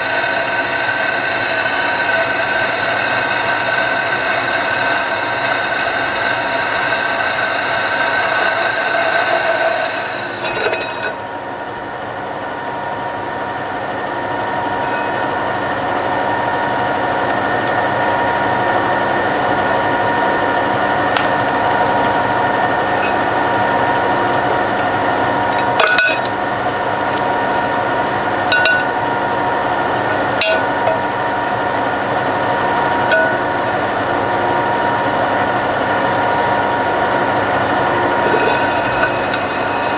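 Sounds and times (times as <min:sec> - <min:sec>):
drill press whining: 0:00.0 - 0:11.4, 0:37.3 - 0:39.9.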